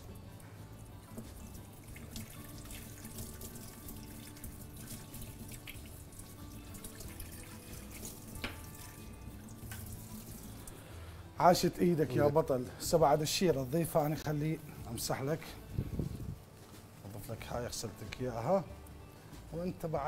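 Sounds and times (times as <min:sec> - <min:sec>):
faint background music: 0:00.0 - 0:20.0
water running from tap: 0:01.1 - 0:10.7.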